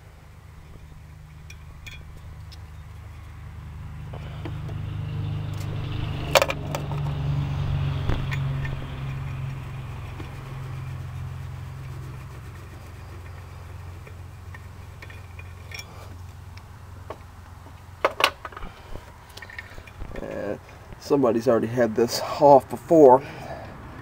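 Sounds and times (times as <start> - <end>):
low steady drone: 0.0 - 17.9
socket wrench clinks: 1.4 - 2.2, 15.0 - 16.1.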